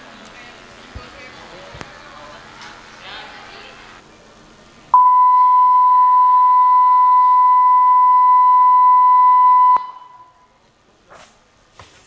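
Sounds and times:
steady test tone beep: 5.0s - 10.4s.

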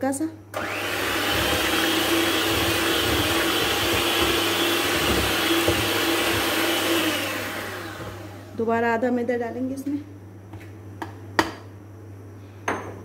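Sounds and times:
electric hand mixer running: 0.6s - 8.6s.

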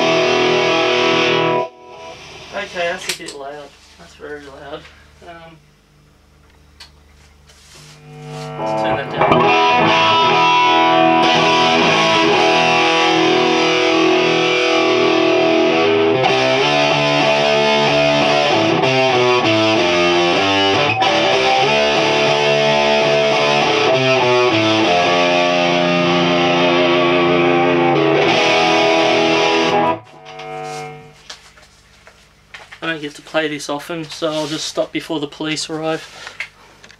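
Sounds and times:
overdriven electric guitar chords: 0.0s - 2.8s, 8.0s - 31.2s.

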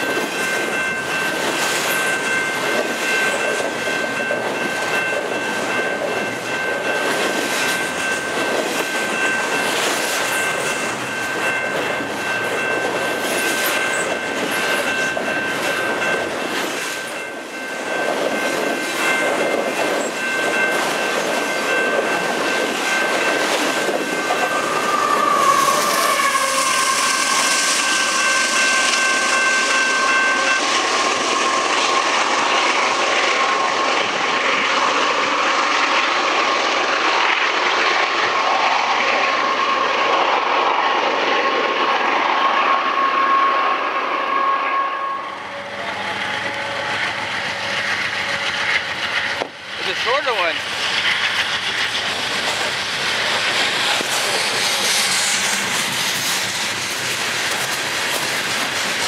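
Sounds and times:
wheel-on-rail noise: 0.0s - 59.0s
high-pitched wheel squeal: 24.4s - 32.1s, 42.2s - 49.4s
locomotive low steady tone: 43.4s - 49.8s.

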